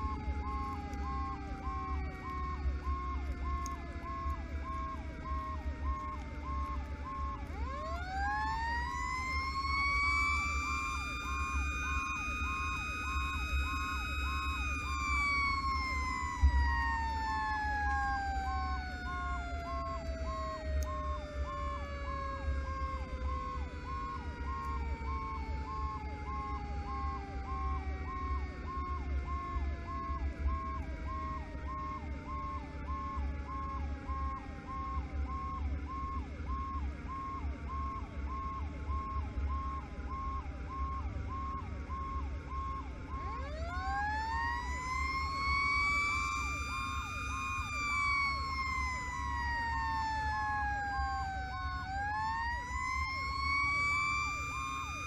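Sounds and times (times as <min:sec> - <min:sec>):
diesel engine and road rumble: 0:00.0 - 0:55.0
electronic siren yelping: 0:00.0 - 0:55.0
mechanical siren winding: 0:00.0 - 0:55.0.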